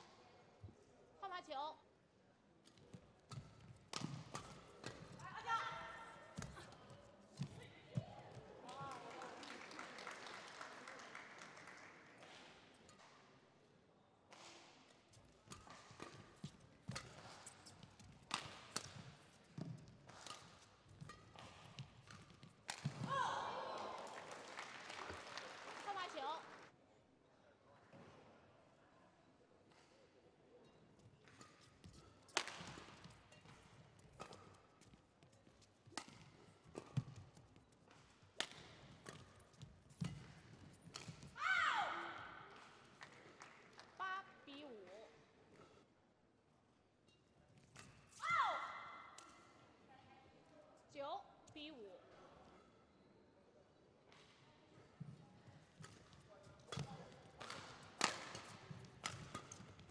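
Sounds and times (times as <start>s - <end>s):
rackets hitting shuttlecock: 2.6s - 8.4s, 14.3s - 24.3s, 31.2s - 43.3s, 47.6s - 48.3s, 55.7s - 59.9s.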